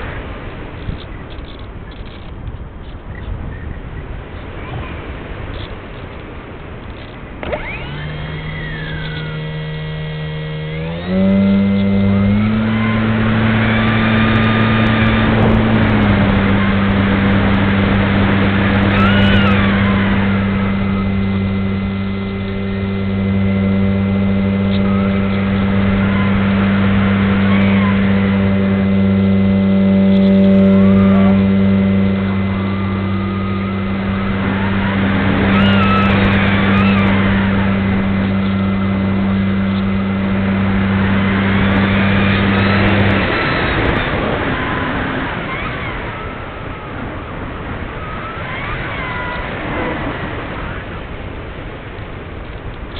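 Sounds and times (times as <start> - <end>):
electric motor and propeller humming: 4.2 - 52.9
wind rushing: 12.0 - 23.0, 30.4 - 52.3.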